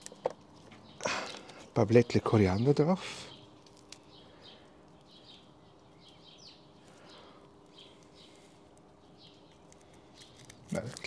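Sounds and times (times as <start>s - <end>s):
low steady hum: 0.0s - 11.0s
faint small bird chirps: 2.5s - 11.0s.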